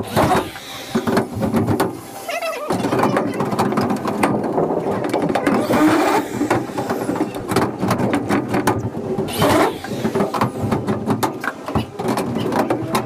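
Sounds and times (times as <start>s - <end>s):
panels clicking and clattering: 2.6s - 13.0s
cordless drill driving screws: 9.3s - 10.2s.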